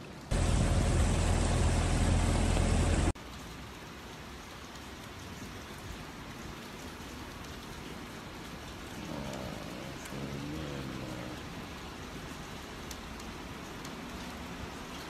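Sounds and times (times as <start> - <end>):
steady rain hiss: 0.0 - 15.0
loud deep rushing noise: 0.3 - 3.2.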